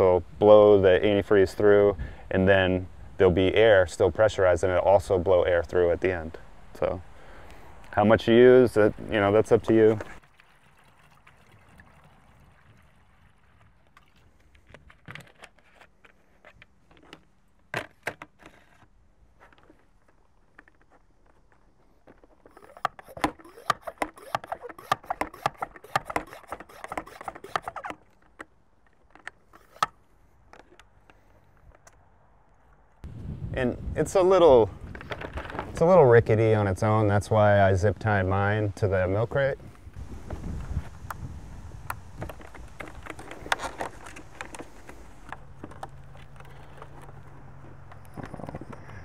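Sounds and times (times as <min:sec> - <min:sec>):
hand pump clicking strokes: 0:22.4 - 0:28.2, 0:29.1 - 0:30.0.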